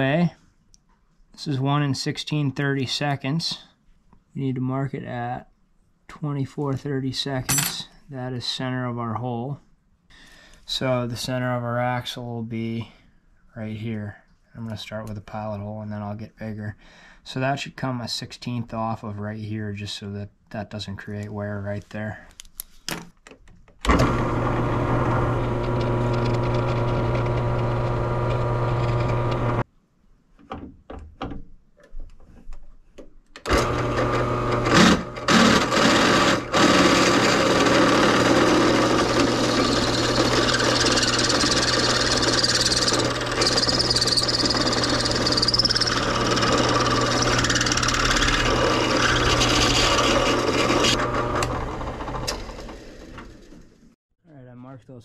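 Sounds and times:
electric drill boring metal: 23.9 - 29.6, 33.5 - 53.6.

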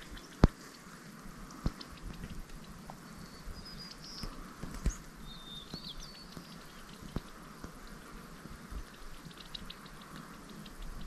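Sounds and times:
soft background hiss: 0.0 - 11.0
whistled bird chirps: 3.2 - 6.6
light clicks and taps: 5.7 - 8.1, 8.8 - 11.0.

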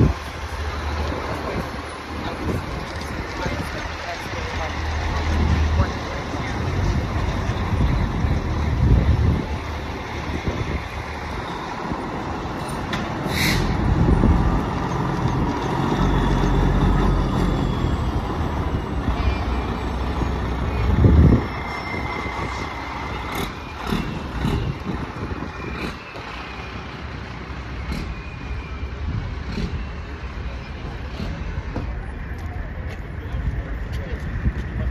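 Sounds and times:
fire truck diesel engines: 0.0 - 34.9
air brakes hissing: 12.6 - 14.0.

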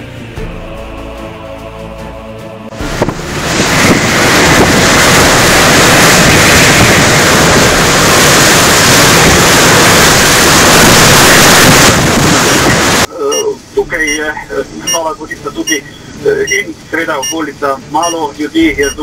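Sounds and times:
wind hitting microphone: 2.7 - 13.1.

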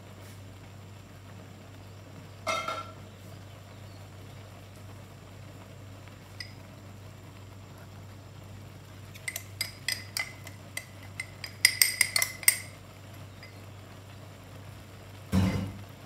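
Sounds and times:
utensil clinking on container: 9.1 - 12.8.

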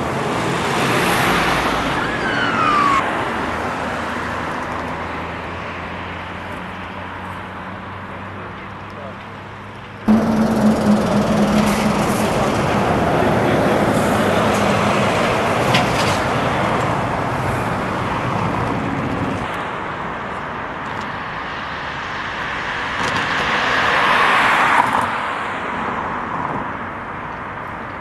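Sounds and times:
road traffic: 0.0 - 28.0
low engine drone: 10.1 - 15.4
vehicle passing: 10.1 - 19.0.

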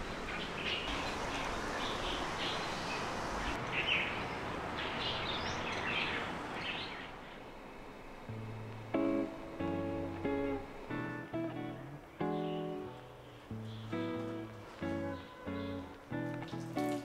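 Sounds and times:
birds chirping: 0.0 - 17.0
outdoor background hiss: 0.0 - 17.0.

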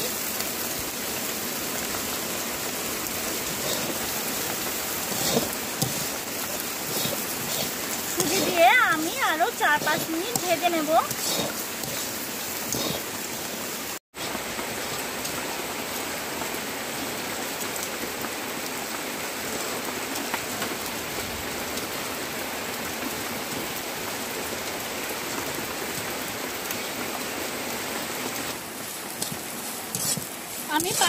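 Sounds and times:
steady rain falling: 0.0 - 31.0.

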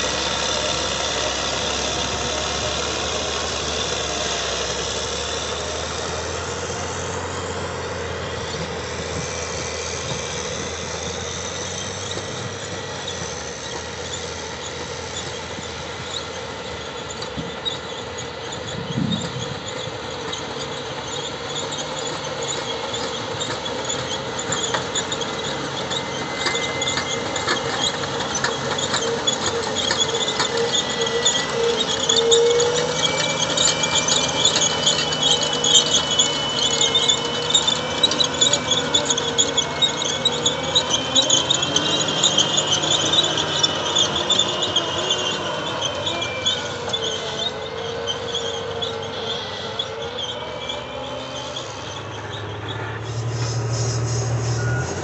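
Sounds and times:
diesel engine under load: 0.0 - 55.0
high squeal and whine: 0.0 - 55.0.

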